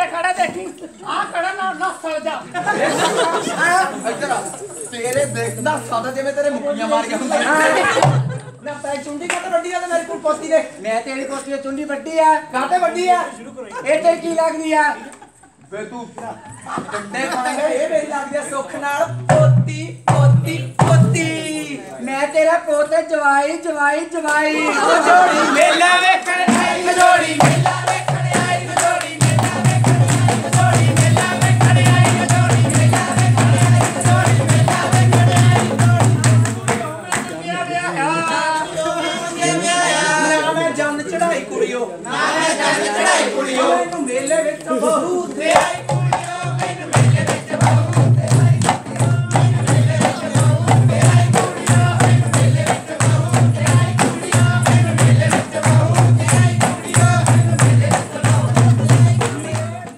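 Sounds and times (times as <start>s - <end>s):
hand drum dance beat: 19.0s - 21.5s, 26.4s - 37.3s, 45.5s - 59.9s
hand clapping: 27.0s - 37.4s, 45.5s - 59.9s.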